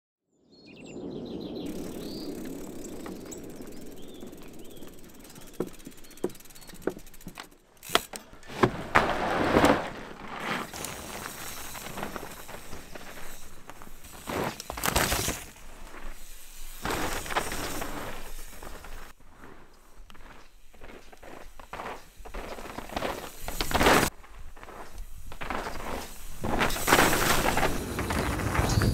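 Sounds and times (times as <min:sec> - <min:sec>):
birds chirping: 0:00.6 - 0:08.5
bike tyres skidding on dirt: 0:01.0 - 0:28.9
bike clicks and knocks: 0:01.7 - 0:16.2, 0:16.8 - 0:19.2.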